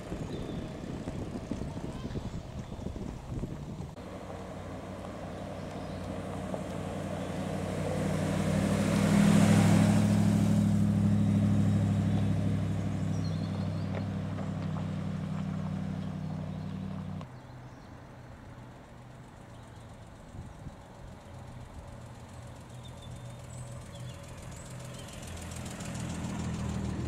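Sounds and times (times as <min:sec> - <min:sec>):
car engine driving past: 0:03.8 - 0:17.3, 0:22.8 - 0:27.0.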